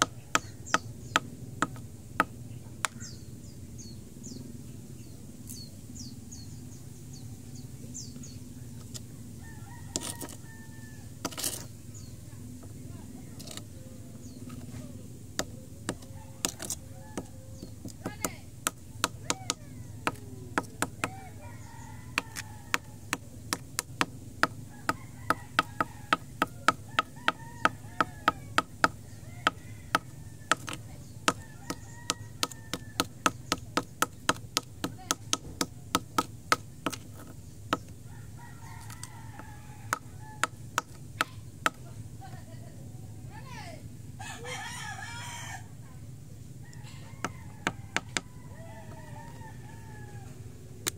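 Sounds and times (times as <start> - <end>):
tool tapping on concrete: 0.0 - 3.1, 9.9 - 10.4, 11.2 - 11.7, 13.4 - 13.7, 15.4 - 21.2, 22.1 - 38.0, 38.8 - 41.9, 47.2 - 48.3.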